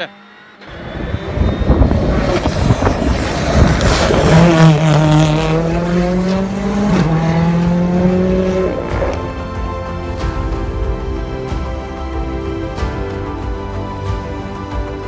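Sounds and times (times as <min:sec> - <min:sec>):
rally car engine running hard: 0:00.0 - 0:09.4.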